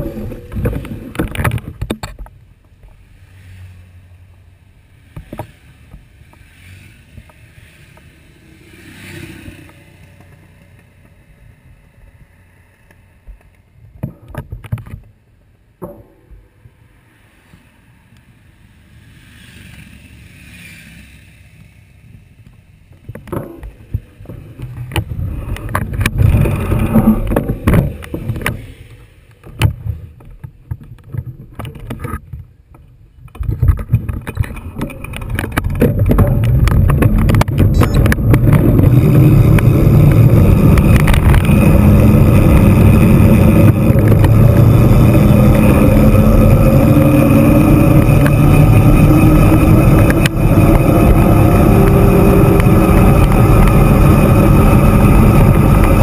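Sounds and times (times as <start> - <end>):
knocks: 15.8 - 16.7
wind rushing over microphone: 21.5 - 31.9, 33.3 - 56.0.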